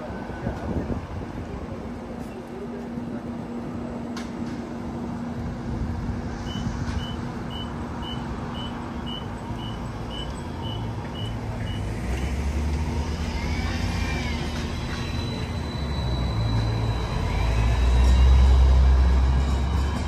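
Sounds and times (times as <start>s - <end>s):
high warning beeps: 6.4s - 11.9s, 14.8s - 18.6s.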